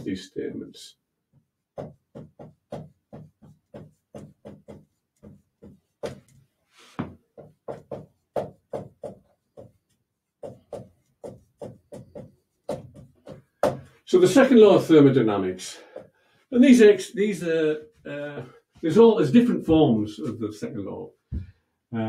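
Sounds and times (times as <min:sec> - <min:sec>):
marker writing on whiteboard: 0:01.3 - 0:14.0.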